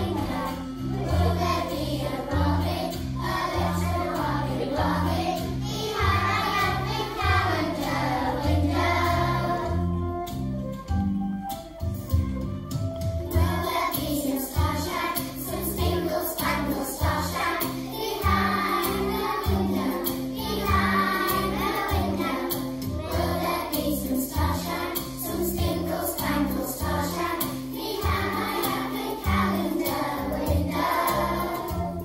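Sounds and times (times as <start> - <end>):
children singing: 0.0 - 9.9, 13.3 - 32.0
musical accompaniment with bass line: 0.0 - 32.0.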